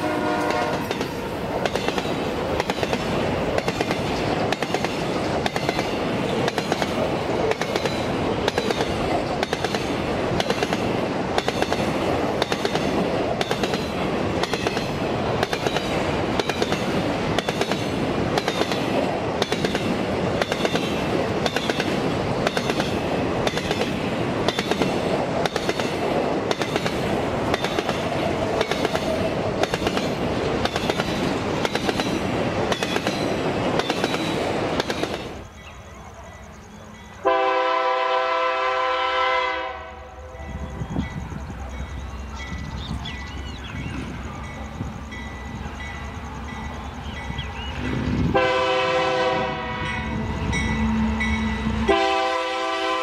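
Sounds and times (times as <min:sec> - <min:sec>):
train wheels clicking over rail joints: 0:00.0 - 0:37.2
train rumble and rattle: 0:00.0 - 0:53.0.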